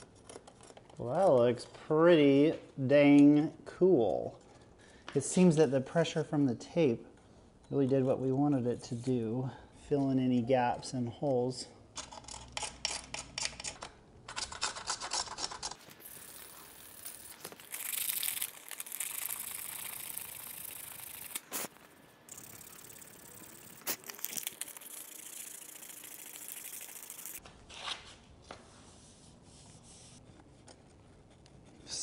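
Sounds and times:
duct tape ripping off: 0:15.8 - 0:27.4.

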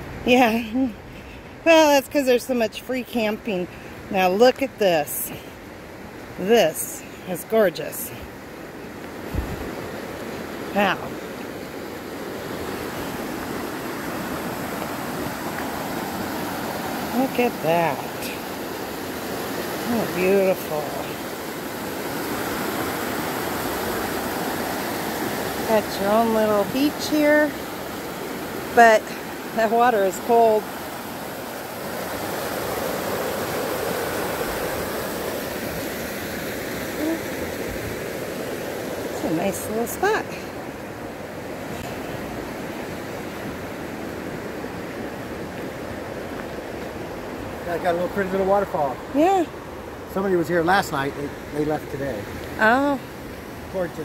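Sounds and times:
river rushing over rocks: 0:08.7 - 0:50.6.

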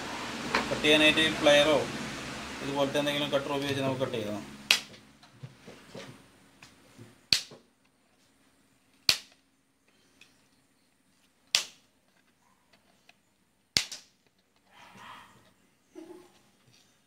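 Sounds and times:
wooden sticks snapping under cutter: 0:04.7 - 0:05.0, 0:06.6 - 0:07.6, 0:09.0 - 0:09.4, 0:11.5 - 0:11.8, 0:13.7 - 0:14.2.

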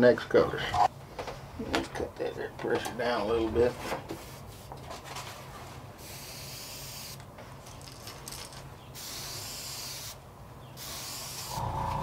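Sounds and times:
airbrush spraying paint: 0:06.0 - 0:07.2, 0:09.0 - 0:10.2, 0:10.8 - 0:12.0.

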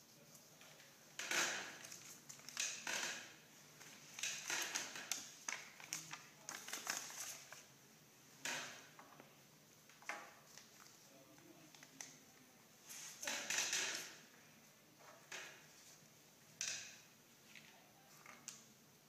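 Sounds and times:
wrappers crinkling and rustling: 0:03.8 - 0:07.7.

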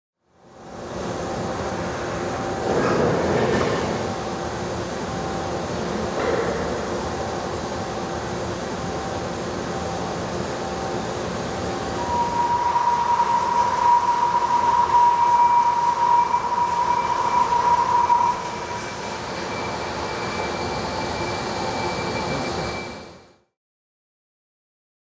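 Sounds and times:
high-pitched drill cutting whine: 0:11.6 - 0:23.2.

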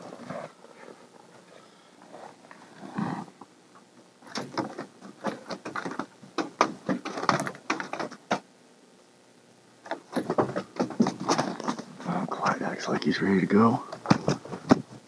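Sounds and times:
knocks against walls and perch: 0:04.3 - 0:08.5, 0:09.9 - 0:11.9.

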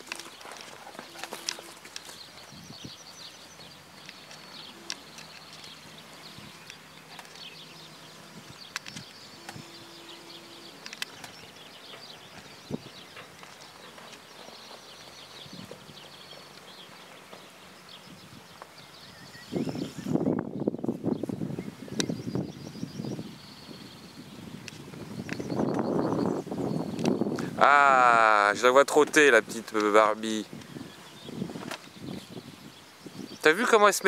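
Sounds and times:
horse hooves thudding on ground: 0:00.0 - 0:19.0
songbirds chirping: 0:00.0 - 0:34.0.

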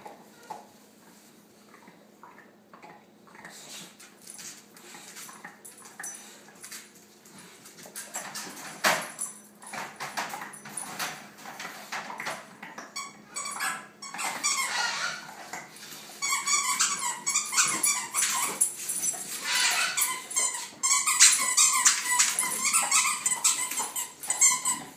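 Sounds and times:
squeaky toy squeaks: 0:13.0 - 0:15.3, 0:16.2 - 0:18.6, 0:19.4 - 0:24.9.

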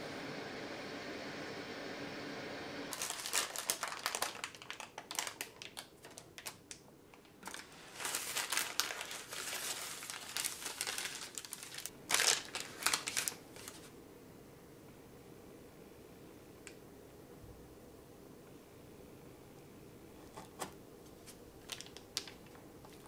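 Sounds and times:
parchment paper crinkling: 0:02.9 - 0:13.9, 0:20.2 - 0:23.0.

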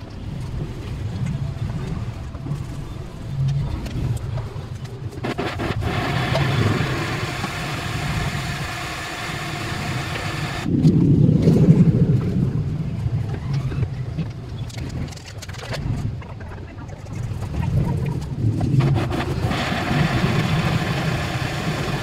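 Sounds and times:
low rumble: 0:00.0 - 0:22.0
electric blender motor whirring: 0:05.2 - 0:10.7, 0:18.8 - 0:22.0.

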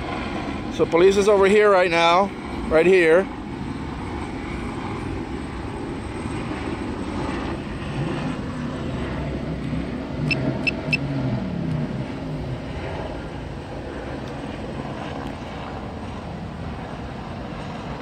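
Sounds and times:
street traffic rumble: 0:00.0 - 0:18.0
short high electronic beeps: 0:10.3 - 0:11.0.

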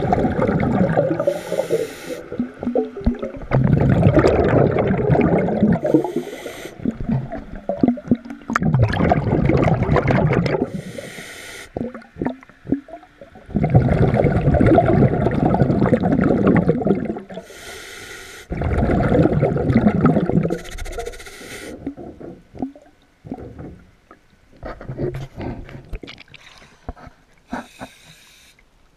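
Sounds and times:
gurgle of exhaled bubbles: 0:00.0 - 0:10.8, 0:11.8 - 0:17.4, 0:18.5 - 0:21.1
underwater breathing inhale hiss: 0:01.2 - 0:02.4, 0:05.8 - 0:06.9, 0:10.7 - 0:11.8, 0:17.4 - 0:18.5, 0:20.6 - 0:21.8, 0:27.5 - 0:28.6
water splashing and lapping: 0:18.5 - 0:28.0.

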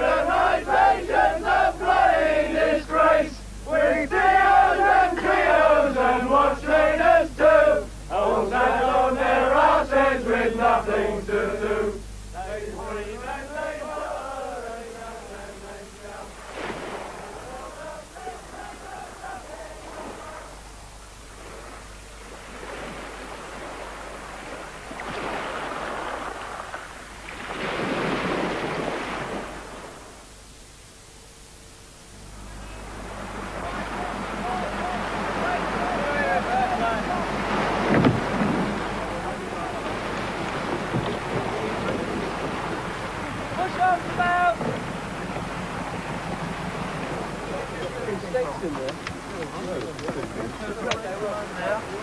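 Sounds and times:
men singing chant-like song: 0:00.0 - 0:16.4, 0:17.0 - 0:20.6, 0:33.6 - 0:39.9
small waves washing onto beach: 0:16.2 - 0:30.2, 0:32.8 - 0:52.0.

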